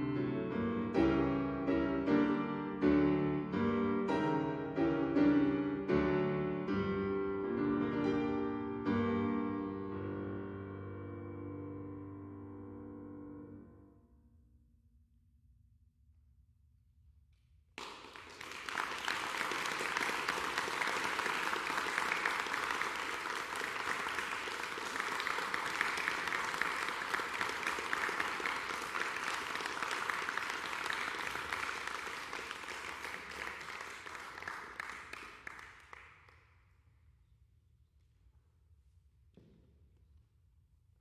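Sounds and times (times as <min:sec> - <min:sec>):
audience applause: 0:17.8 - 0:36.2.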